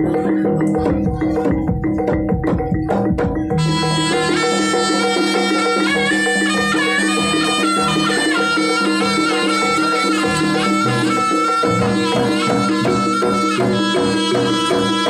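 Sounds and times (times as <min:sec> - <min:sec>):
drums: 0:00.0 - 0:15.0
gamelan pattern: 0:00.0 - 0:15.0
shrill double-reed trumpet melody: 0:03.6 - 0:15.0.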